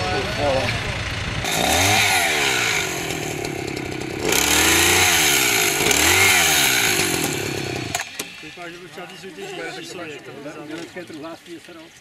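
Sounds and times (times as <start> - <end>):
chainsaw revving: 0.2 - 8.6.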